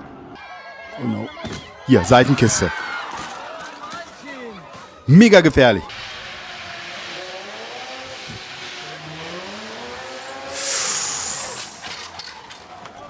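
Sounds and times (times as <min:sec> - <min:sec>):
car engine revving: 0:05.9 - 0:12.2
car crashing: 0:05.9 - 0:12.8.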